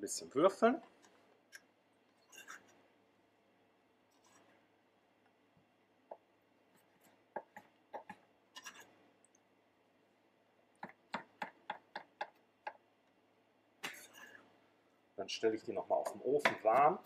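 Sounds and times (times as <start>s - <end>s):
knife chopping on wooden board: 10.8s - 12.8s, 16.0s - 16.9s.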